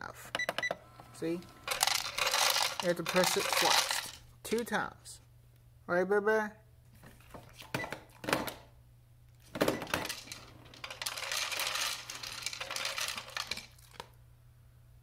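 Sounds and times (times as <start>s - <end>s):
kibble rattling into plastic tray: 1.7s - 4.2s, 9.9s - 14.0s.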